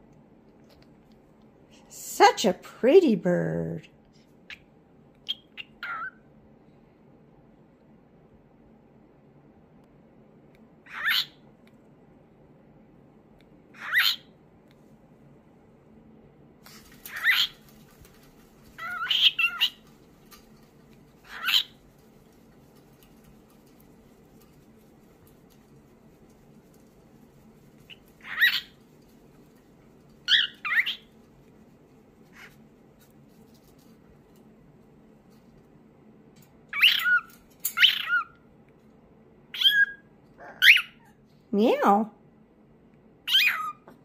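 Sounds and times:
cockatoo calling: 16.8 - 20.0, 21.2 - 21.8, 27.8 - 28.8, 39.6 - 41.1, 43.3 - 44.0.

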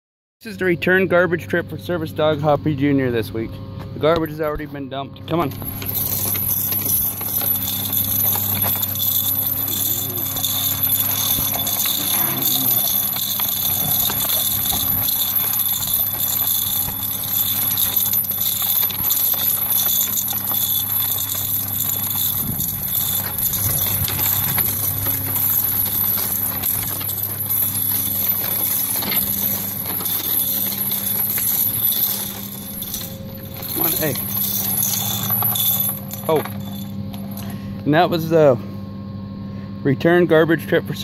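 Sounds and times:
metal chain harness jingling: 5.4 - 37.6.

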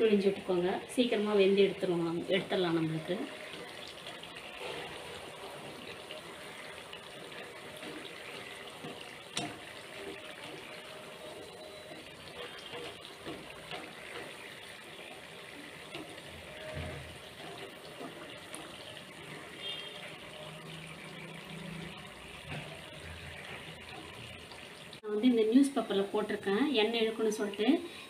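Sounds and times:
oil bubbling and sizzling: 0.0 - 28.0.

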